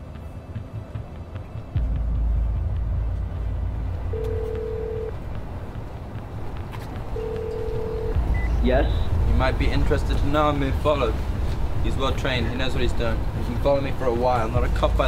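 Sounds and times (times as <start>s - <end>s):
telephone ringback tone beeps: 4.2s - 5.1s, 7.2s - 8.6s
subway train rumbling: 8.2s - 15.0s.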